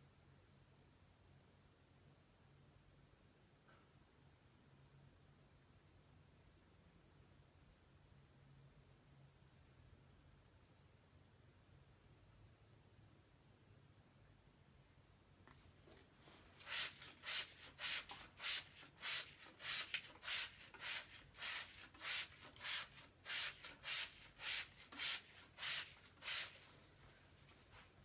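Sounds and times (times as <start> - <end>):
spray bottle squirting water: 16.6 - 26.7.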